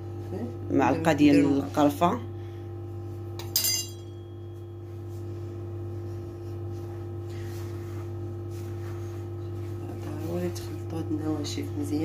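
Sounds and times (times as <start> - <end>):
steady low hum: 0.0 - 12.0
metal spoon clinking on dish: 3.4 - 4.3.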